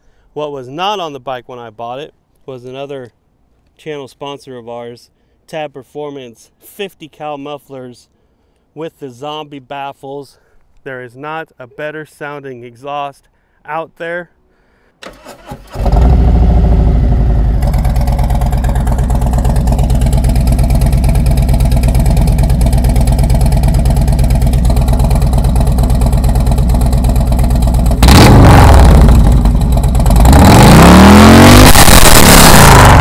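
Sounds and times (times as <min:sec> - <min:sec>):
motorcycle engine starting and idling: 0:15.0 - 0:31.2
motorcycle engine revving: 0:15.7 - 0:33.0.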